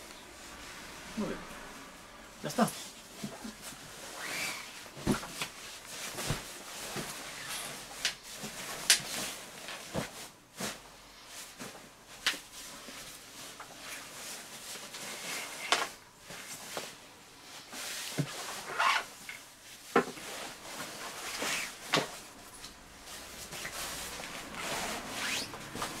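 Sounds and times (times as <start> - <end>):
sleeping bag fabric rustling: 2.8 - 26.0.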